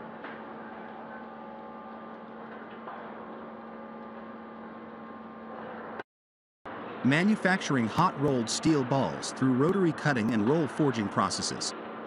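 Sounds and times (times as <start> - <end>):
rolling mill machine hum: 6.7 - 12.0.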